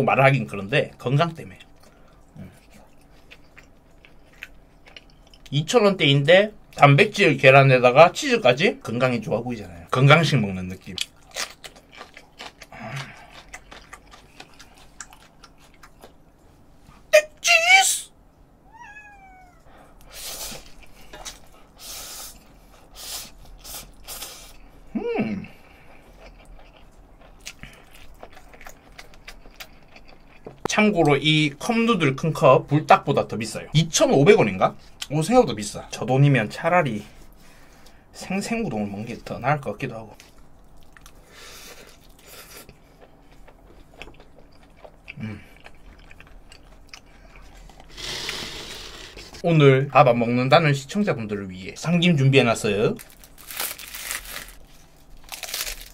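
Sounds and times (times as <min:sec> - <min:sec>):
wet mouth chewing: 0:10.9 - 0:16.2, 0:26.1 - 0:30.6, 0:40.6 - 0:49.4
cat meowing: 0:18.7 - 0:19.8
slurping and eating: 0:44.2 - 0:49.4.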